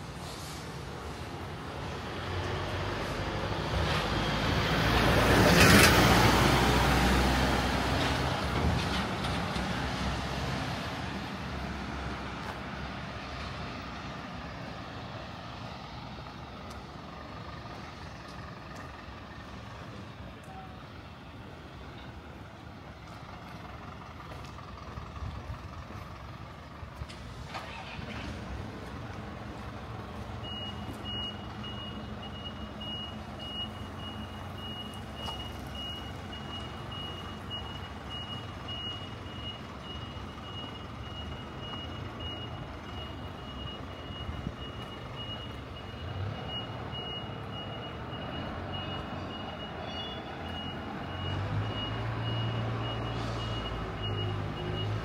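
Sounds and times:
street noise: 0:00.0 - 0:55.0
truck engine humming: 0:00.0 - 0:55.0
truck reversing alarm beeping: 0:29.6 - 0:55.0.

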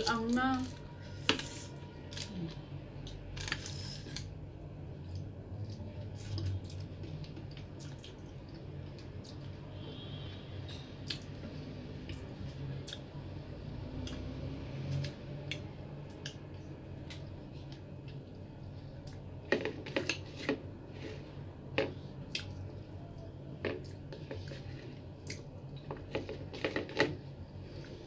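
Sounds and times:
low steady hum: 0:00.0 - 0:28.0
chewing and lip-smacking: 0:05.0 - 0:09.6, 0:22.3 - 0:22.7.

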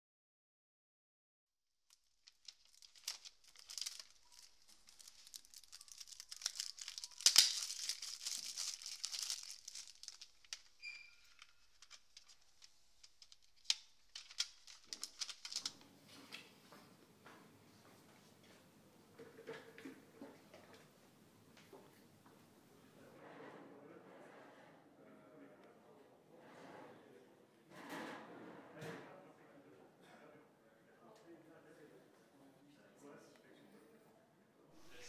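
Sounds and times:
cellophane crackling and crinkling: 0:01.9 - 0:15.8.

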